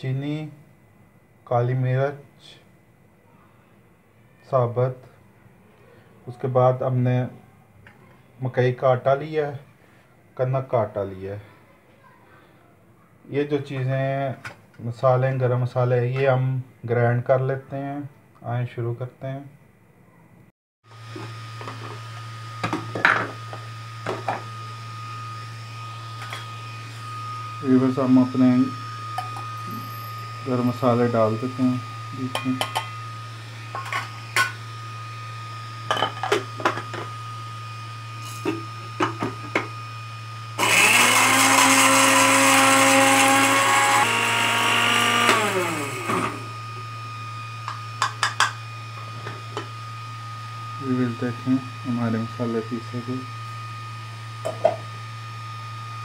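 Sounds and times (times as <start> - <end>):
blender motor whining: 20.9 - 56.0
kitchen items knocking and clinking: 22.6 - 23.4, 32.3 - 33.0, 33.7 - 34.6, 35.9 - 37.1, 38.4 - 39.7, 47.7 - 48.6, 54.4 - 54.9.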